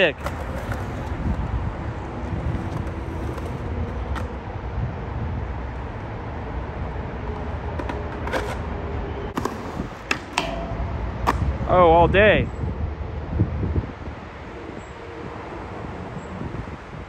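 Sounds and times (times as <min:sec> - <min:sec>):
skateboard clacks: 0:00.0 - 0:01.5, 0:02.2 - 0:04.4, 0:07.7 - 0:08.7, 0:09.3 - 0:11.6
skateboard wheels rolling on concrete: 0:00.0 - 0:17.0
skateboard hitting metal handrail: 0:09.4 - 0:11.7.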